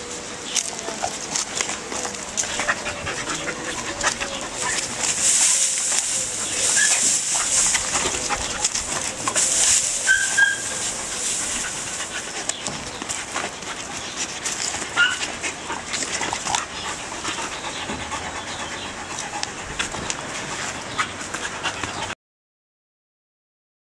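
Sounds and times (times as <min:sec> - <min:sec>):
dog paws scuffling: 0:00.1 - 0:22.1
dog panting: 0:00.6 - 0:22.2
dog whining: 0:06.3 - 0:11.2.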